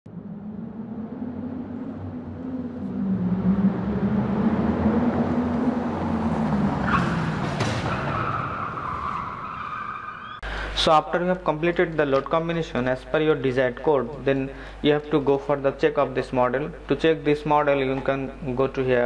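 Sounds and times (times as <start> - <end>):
wavering low rumble: 0.0 - 6.8.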